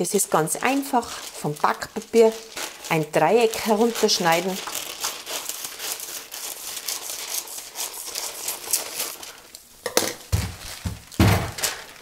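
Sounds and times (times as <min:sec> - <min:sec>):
paper rustling and crinkling: 0:00.0 - 0:09.6, 0:10.3 - 0:12.0
scissors cutting paper: 0:03.6 - 0:09.2.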